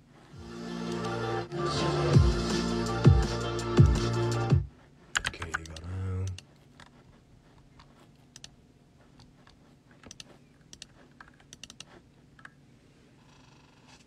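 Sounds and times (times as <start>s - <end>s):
faint keyboard typing: 5.1s - 12.6s.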